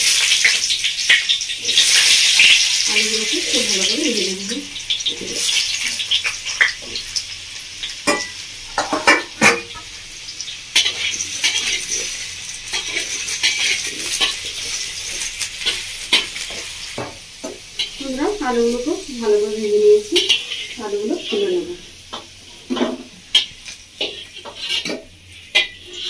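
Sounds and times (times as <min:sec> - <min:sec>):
potatoes sizzling in oil: 0:00.0 - 0:26.0
metal spatula scraping pan: 0:20.1 - 0:26.0.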